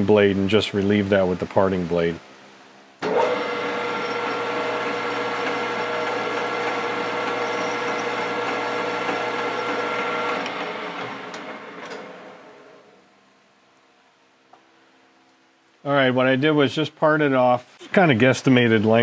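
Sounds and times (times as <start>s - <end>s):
metal lathe whining: 3.0s - 12.8s
hand tool against spinning metal: 3.9s - 10.2s.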